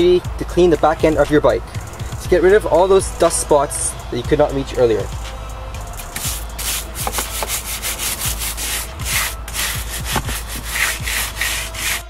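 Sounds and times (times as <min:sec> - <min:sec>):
rough scrubbing strokes: 0:06.2 - 0:12.0.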